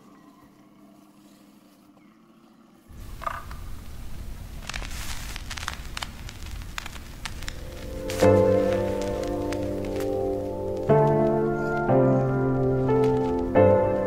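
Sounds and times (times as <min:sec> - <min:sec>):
crackling of leaves and stones: 0:02.9 - 0:14.0
low rumble: 0:02.9 - 0:14.0
faint background music: 0:07.7 - 0:14.0.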